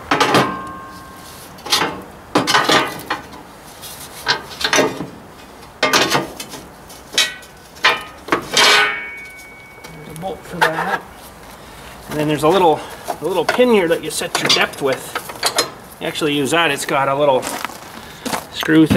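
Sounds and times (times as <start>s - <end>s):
metal parts knocking and scraping: 0.1s - 3.4s, 4.2s - 5.1s, 5.8s - 11.0s, 12.5s - 15.8s.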